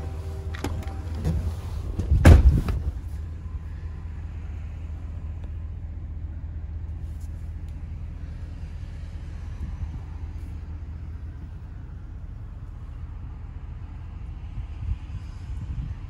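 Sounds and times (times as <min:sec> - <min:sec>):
truck engine idling: 0:00.0 - 0:16.0
loud thump: 0:00.6 - 0:03.2.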